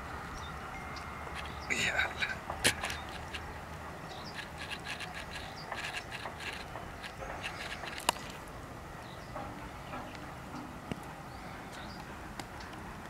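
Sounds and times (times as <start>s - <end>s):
fish scraping and rubbing: 1.4s - 8.5s.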